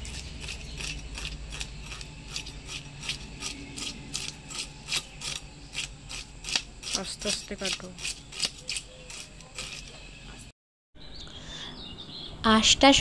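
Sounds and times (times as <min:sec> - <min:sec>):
fish scales scraped on blade: 0:00.0 - 0:10.1.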